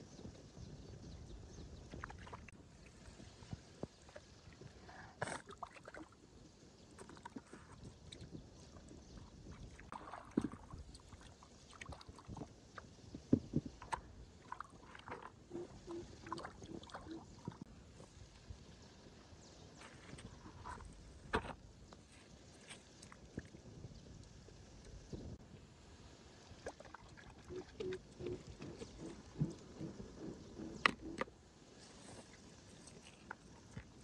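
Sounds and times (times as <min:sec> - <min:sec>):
water splashes: 0:01.9 - 0:06.2, 0:07.0 - 0:18.1, 0:26.3 - 0:31.3.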